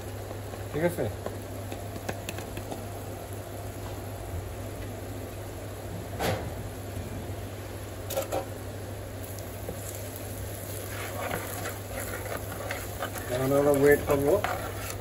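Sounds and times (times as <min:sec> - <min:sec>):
low hum and hiss: 0:00.0 - 0:15.0
metal spoon scraping a pot: 0:10.8 - 0:15.0.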